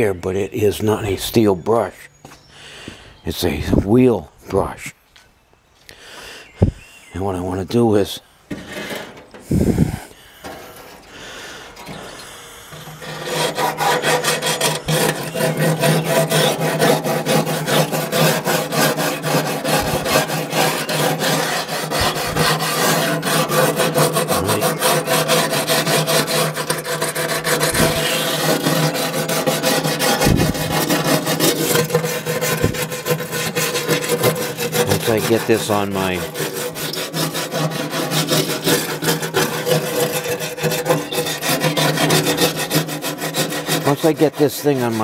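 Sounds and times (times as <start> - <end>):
wire brush scratching metal: 8.5 - 11.2, 11.8 - 45.0.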